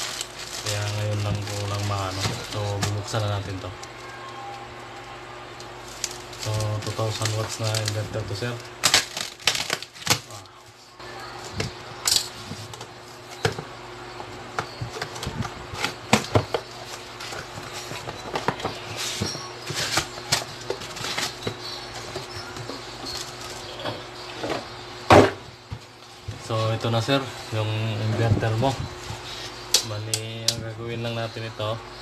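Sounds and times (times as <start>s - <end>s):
plastic packaging crinkling: 0.0s - 4.6s, 5.8s - 10.5s
faint steady hum: 0.0s - 32.0s.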